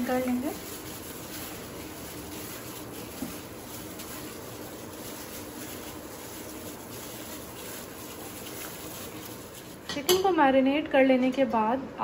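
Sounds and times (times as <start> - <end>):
gloved hand squishing wet meat: 0.0 - 9.9.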